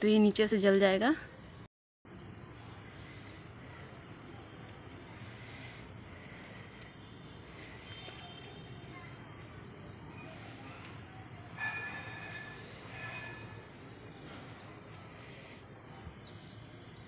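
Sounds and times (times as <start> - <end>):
outdoor background noise: 0.0 - 17.0
faint high chirps: 6.6 - 15.0, 15.8 - 17.0.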